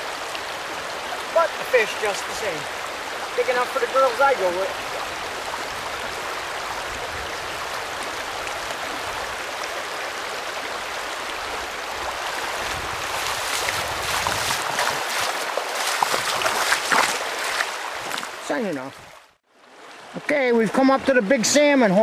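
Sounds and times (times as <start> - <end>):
rocky river running: 0.0 - 22.0
splashing of someone wading: 12.3 - 18.4.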